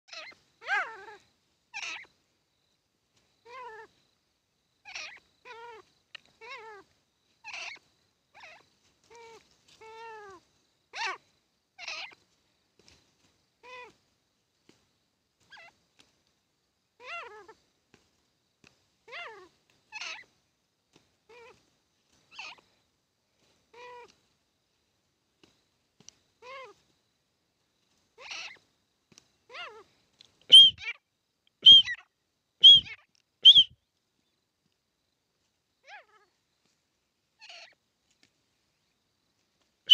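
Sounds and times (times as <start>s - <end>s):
francolin calling: 0.1s - 2.2s, 4.8s - 11.2s, 11.8s - 12.2s, 22.3s - 22.7s, 28.2s - 28.7s, 29.5s - 33.9s, 37.4s - 37.8s.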